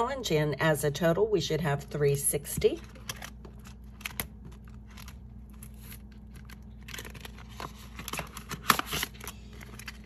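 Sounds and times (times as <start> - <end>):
faint steady hum: 0.0 - 10.0
paper banknotes rustling: 2.8 - 10.0.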